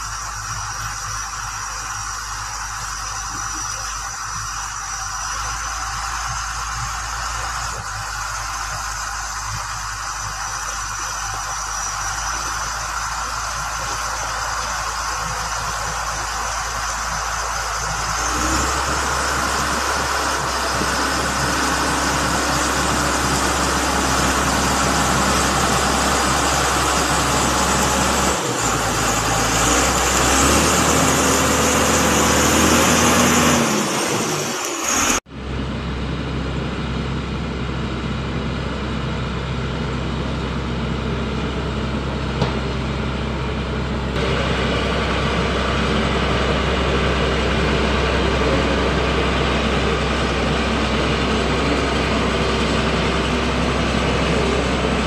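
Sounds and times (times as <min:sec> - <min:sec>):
motor grader diesel engine: 0:00.0 - 0:55.0
roller compactor diesel engine: 0:00.0 - 0:55.0.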